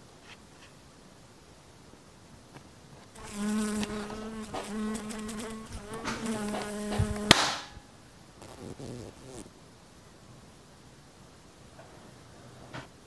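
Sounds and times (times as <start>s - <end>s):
housefly buzzing: 3.2s - 7.7s, 8.4s - 9.5s
sharp slap: 6.0s - 7.8s.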